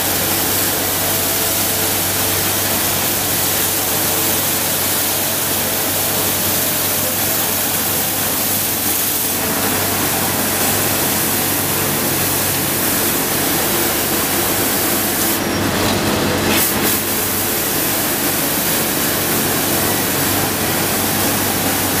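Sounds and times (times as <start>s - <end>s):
hiss: 0.0s - 15.4s
steel brushes scrubbing paving: 0.0s - 22.0s
street sweeper engine humming: 0.0s - 22.0s.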